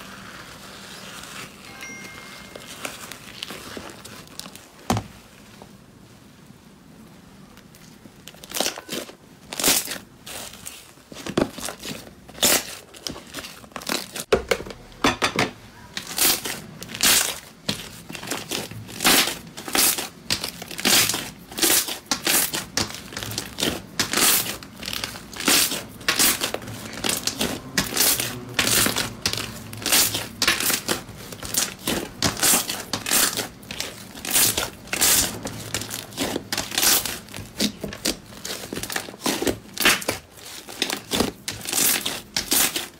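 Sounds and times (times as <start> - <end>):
slime crackling and popping: 7.5 - 14.3, 16.0 - 42.9.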